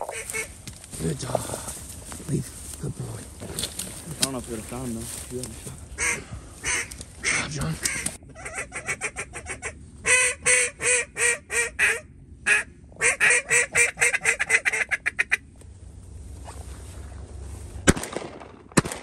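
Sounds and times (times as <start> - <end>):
duck call quacks: 0.0 - 0.5, 6.0 - 15.4.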